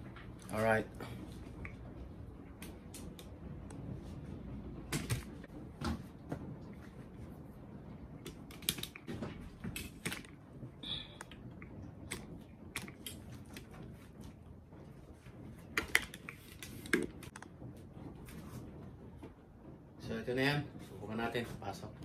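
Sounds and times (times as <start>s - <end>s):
plastic parts clicking and knocking: 8.2s - 10.4s.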